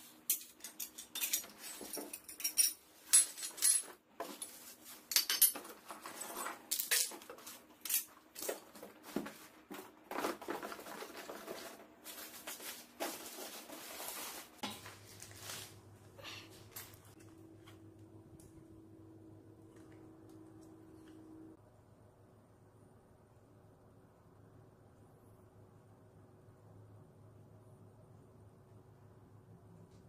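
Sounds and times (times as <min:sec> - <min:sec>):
metal parts clattering on tile: 0:00.3 - 0:08.9
plastic and cardboard rustling: 0:03.9 - 0:16.0.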